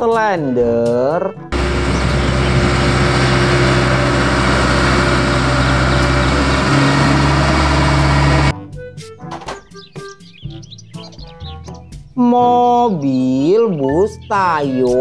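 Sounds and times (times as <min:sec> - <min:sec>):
road roller engine running: 0:01.5 - 0:08.5.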